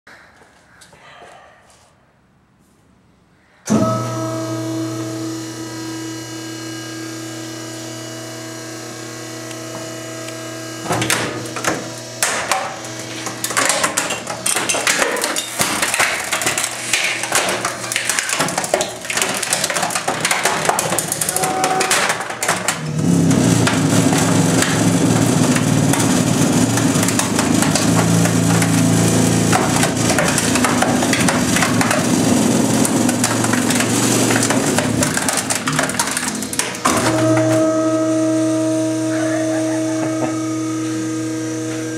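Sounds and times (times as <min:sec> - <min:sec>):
trash compactor motor humming: 0:03.7 - 0:41.9
metal chassis crunching: 0:11.0 - 0:40.8
plastic case cracking: 0:12.2 - 0:22.8.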